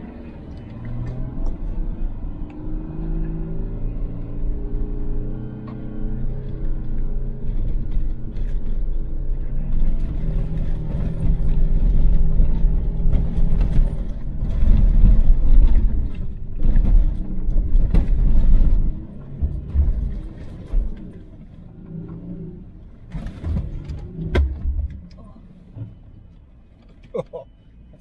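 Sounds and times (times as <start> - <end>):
diesel engine rumble: 0.0 - 28.0
suspension knocking over bumps: 9.7 - 21.2.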